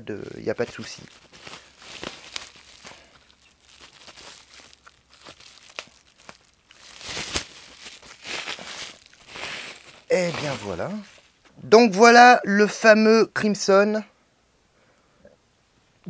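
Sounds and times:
sharp crackles: 0:00.2 - 0:11.4
plastic packaging crinkling: 0:00.2 - 0:11.5.

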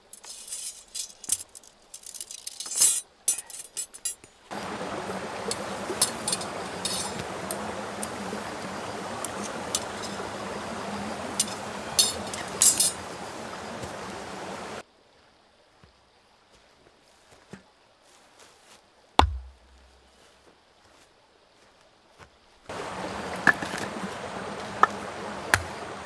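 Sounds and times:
metal rods clinking: 0:00.0 - 0:04.3, 0:05.4 - 0:08.1, 0:09.2 - 0:10.4, 0:11.3 - 0:13.2
steady rushing noise: 0:04.5 - 0:14.8.

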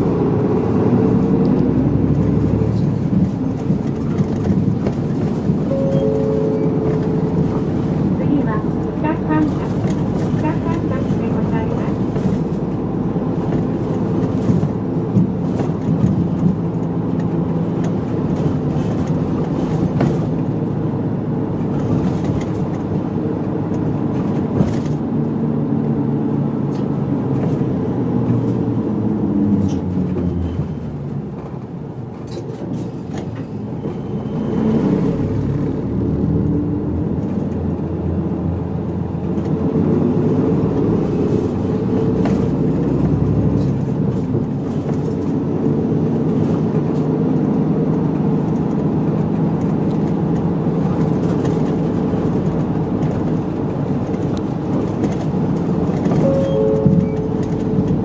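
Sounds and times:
bus engine driving: 0:00.0 - 0:58.0.

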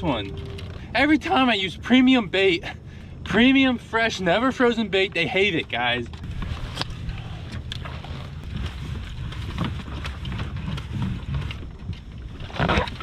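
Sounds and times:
knocks and rustles of rope: 0:07.6 - 0:13.0.

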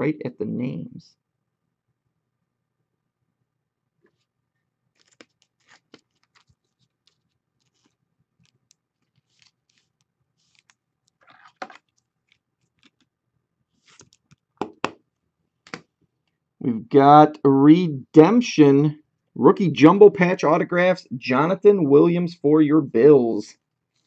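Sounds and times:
cards rustling: 0:04.9 - 0:13.1, 0:13.8 - 0:14.9
card snapping: 0:05.0 - 0:06.5, 0:15.7 - 0:15.9.

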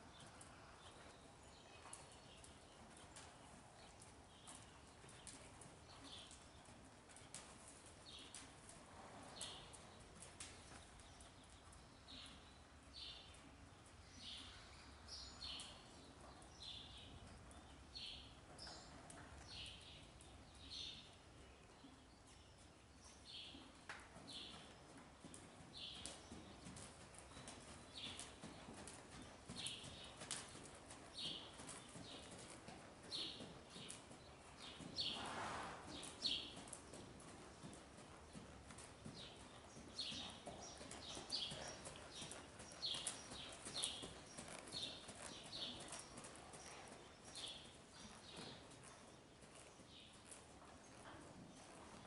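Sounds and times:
horse hoofbeats on sand: 0:24.1 - 0:52.0.

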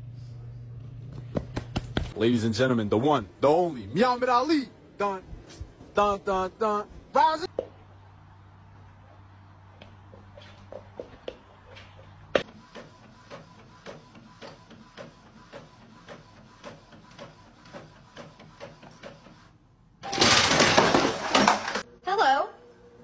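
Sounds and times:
faint printer whine: 0:12.4 - 0:19.8
inkjet printer ticking: 0:12.6 - 0:19.5.

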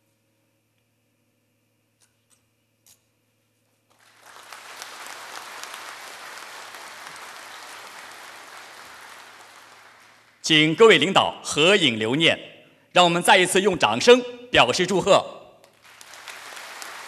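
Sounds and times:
audience applause: 0:03.9 - 0:10.7, 0:15.7 - 0:17.0.

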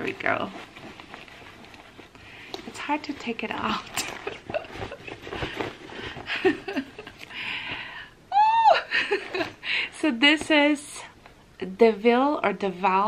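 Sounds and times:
fabric rustling: 0:00.0 - 0:08.0, 0:08.9 - 0:11.5
soft laughs: 0:04.0 - 0:05.6
woman's high excited squeal: 0:08.3 - 0:08.9.

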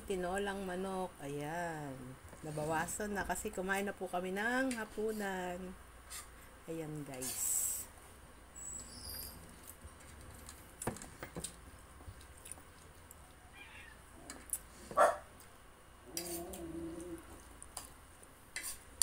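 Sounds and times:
dog barking sharply: 0:15.0 - 0:15.3.

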